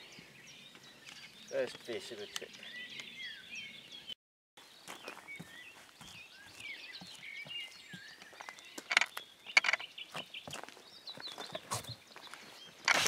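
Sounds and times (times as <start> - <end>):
small birds chirping: 0.0 - 13.0
handling clicks and rustles: 8.2 - 9.9, 11.2 - 13.0.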